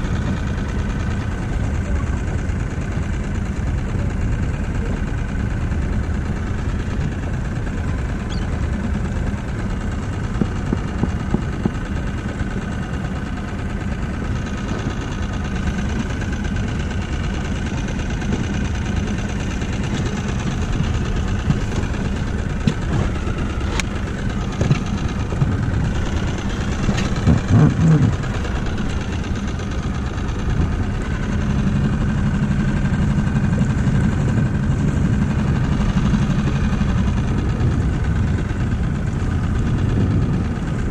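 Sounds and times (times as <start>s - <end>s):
outboard motor running: 0.0s - 40.9s
knocks on boat: 10.3s - 11.8s, 24.6s - 28.2s
water noise: 14.0s - 40.9s.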